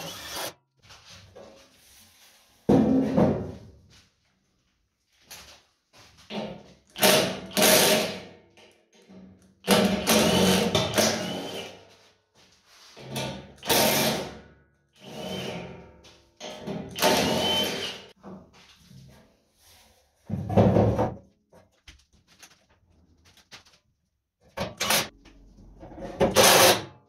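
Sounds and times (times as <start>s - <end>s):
power drill driving screws into metal: 0.0s - 0.5s, 7.0s - 8.2s, 9.7s - 11.7s, 13.6s - 14.3s, 16.9s - 18.1s, 24.7s - 25.1s.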